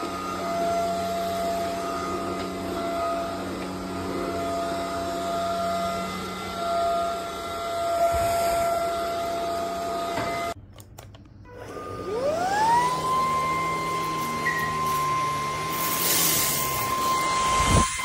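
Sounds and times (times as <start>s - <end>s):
vacuum motor spinning up: 0.0s - 10.6s, 11.5s - 18.0s
stick vacuum motor whine: 0.0s - 18.0s.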